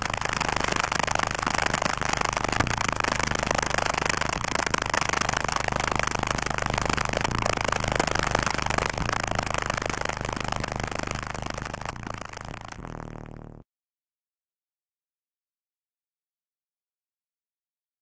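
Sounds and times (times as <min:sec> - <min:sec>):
subwoofers playing deep bass: 0:00.0 - 0:13.6.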